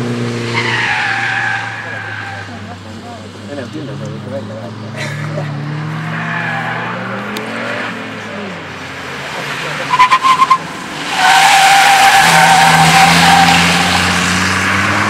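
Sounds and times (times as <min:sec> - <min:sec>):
tyres squealing: 0:00.5 - 0:07.9, 0:09.8 - 0:15.0.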